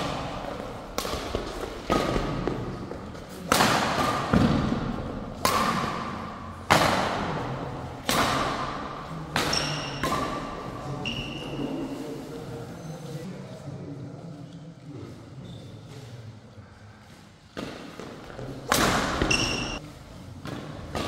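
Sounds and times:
rackets striking shuttlecock: 0.0 - 2.6, 3.4 - 7.4, 8.0 - 10.7
shoes squeaking on court: 19.2 - 19.8.

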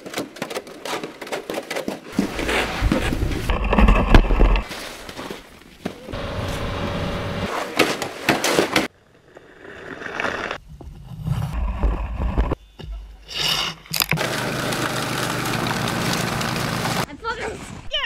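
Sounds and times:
tractor engine running: 6.2 - 7.5, 14.1 - 17.1
plow blade scraping pavement: 6.2 - 7.8, 14.0 - 17.1
snowblower engine throwing snow: 14.2 - 17.1.

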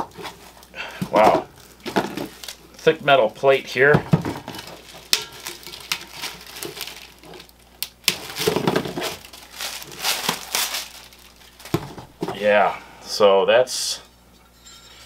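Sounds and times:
plastic wrapping crinkling: 0.0 - 2.8, 4.1 - 12.3.

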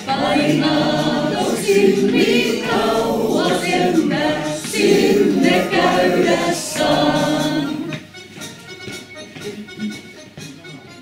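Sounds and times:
choir singing: 0.0 - 8.0.

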